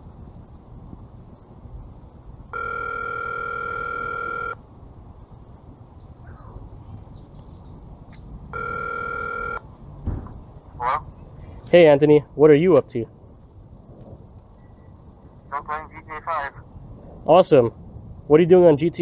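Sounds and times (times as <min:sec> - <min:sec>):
phone ringback tone: 0:02.5 - 0:04.6, 0:08.5 - 0:09.6.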